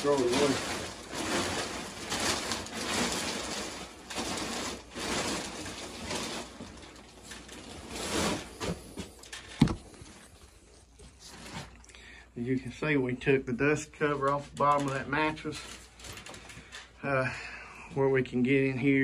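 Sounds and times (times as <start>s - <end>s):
fabric rustling and crinkling: 0.0s - 11.9s, 14.0s - 17.0s.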